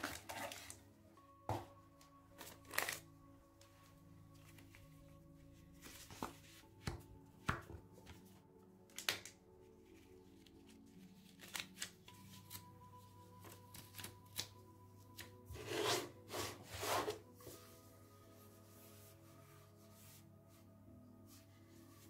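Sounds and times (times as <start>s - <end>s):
paper rustling and scraping: 0.0s - 0.8s, 5.8s - 6.7s, 15.5s - 18.0s
soft background music: 0.0s - 22.0s.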